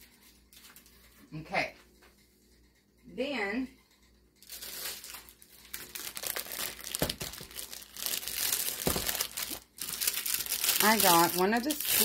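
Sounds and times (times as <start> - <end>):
plastic wrap crinkling: 4.4 - 12.0.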